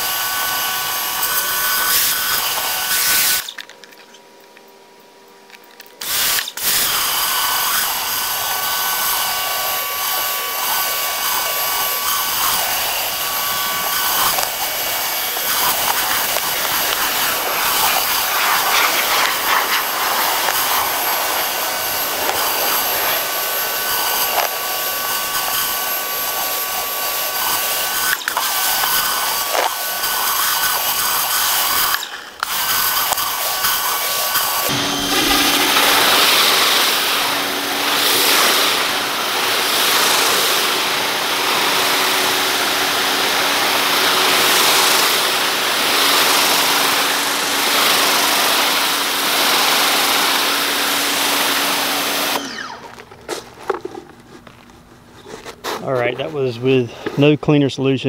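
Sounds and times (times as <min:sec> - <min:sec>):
pressure washer motor whine: 0:00.0 - 0:03.6, 0:06.0 - 0:53.2
water jets hissing on concrete: 0:06.0 - 0:37.2, 0:39.5 - 0:52.4.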